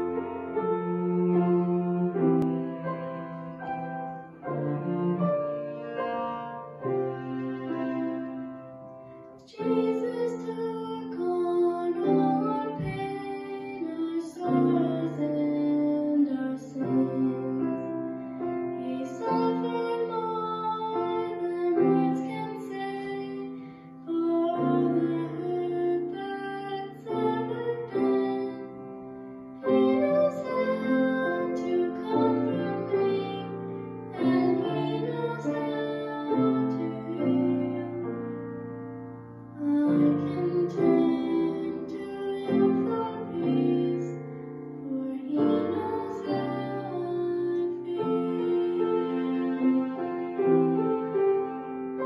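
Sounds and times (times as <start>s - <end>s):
girl singing slow song: 0.0s - 5.2s, 9.0s - 51.7s
piano accompaniment: 0.0s - 52.0s.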